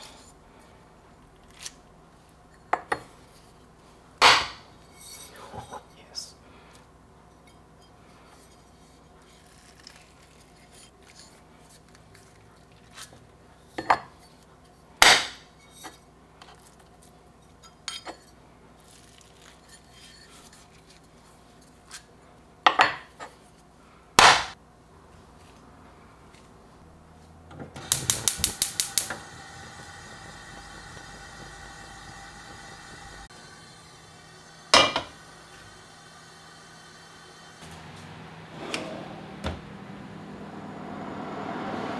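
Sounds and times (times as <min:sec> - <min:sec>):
gas flame hissing: 0:27.7 - 0:40.4
gas stove igniter clicking: 0:27.8 - 0:33.3.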